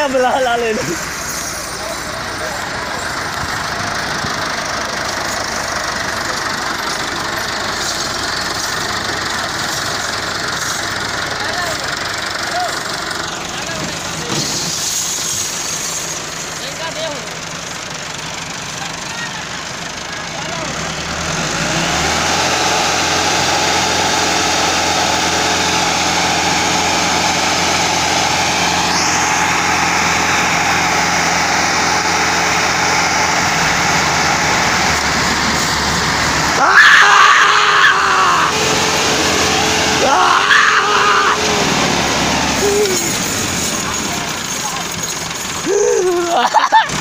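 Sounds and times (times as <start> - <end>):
tractor diesel engines under load: 0.0 - 47.0
onlookers shouting: 36.4 - 43.3.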